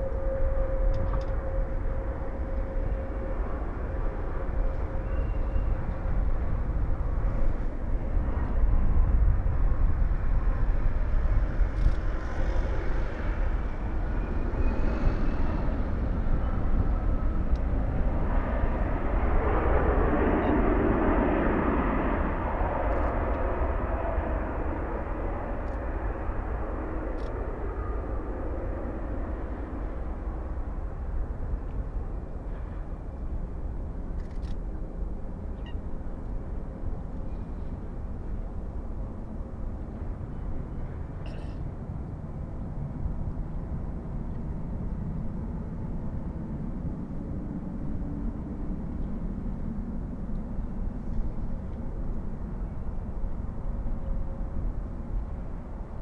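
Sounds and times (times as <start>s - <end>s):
jet engines roaring: 0.0s - 56.0s.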